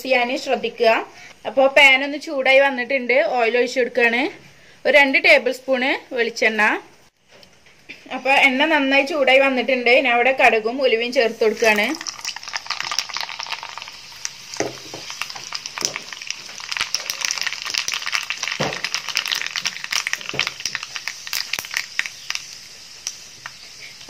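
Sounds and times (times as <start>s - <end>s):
seeds sizzling in hot oil: 11.0s - 24.0s
mustard seeds crackling and popping: 11.5s - 24.0s.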